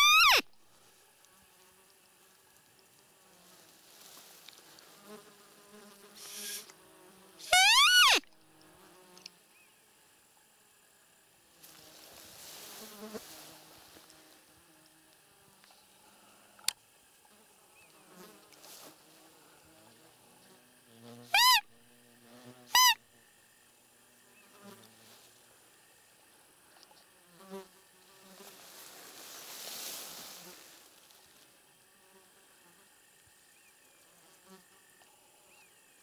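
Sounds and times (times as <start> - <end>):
squeaky deer call: 0.0 - 0.5, 7.4 - 8.3, 21.3 - 21.7, 22.7 - 23.0
faint insect buzz: 0.0 - 36.0.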